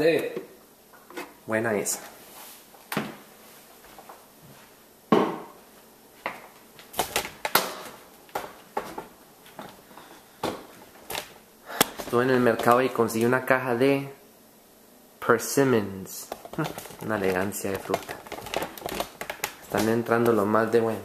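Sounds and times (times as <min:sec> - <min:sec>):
kitchen items knocking on counter: 0:05.1 - 0:05.5.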